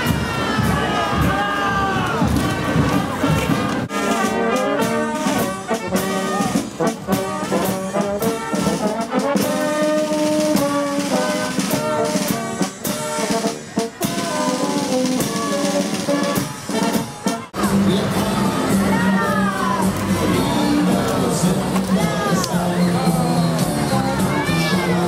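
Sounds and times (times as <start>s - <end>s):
snare drum: 0.0s - 17.6s
trumpets and brass melody: 0.0s - 25.0s.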